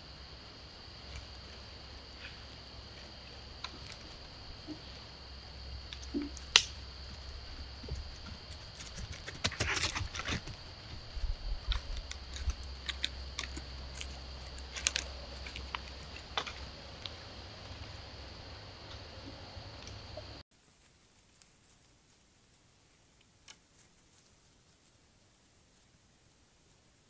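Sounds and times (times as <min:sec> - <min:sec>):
faint high hum: 0:00.0 - 0:27.0
sharp twig snap: 0:06.0 - 0:06.8
deer walking through dry twigs: 0:20.6 - 0:25.0.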